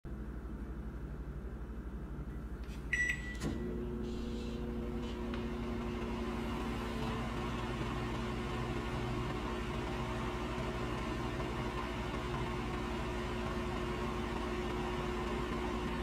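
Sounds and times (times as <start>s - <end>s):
microwave oven humming: 0.1s - 16.0s
keypad beep: 2.9s - 3.5s.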